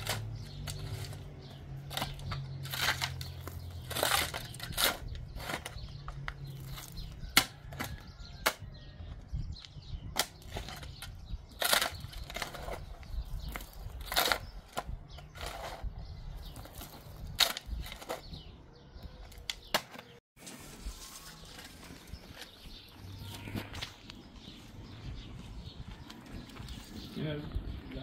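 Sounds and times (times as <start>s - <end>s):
crunching and knocking strokes: 0.0s - 18.5s.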